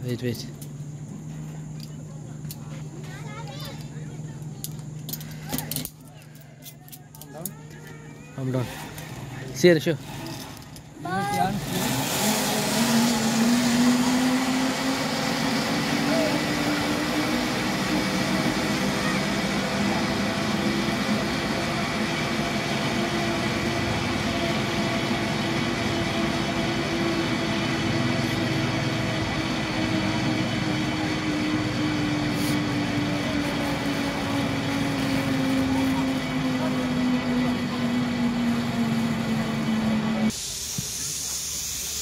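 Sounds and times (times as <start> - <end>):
zipline pulleys whining on cable: 7.3 - 42.0
rushing hiss: 40.3 - 42.0.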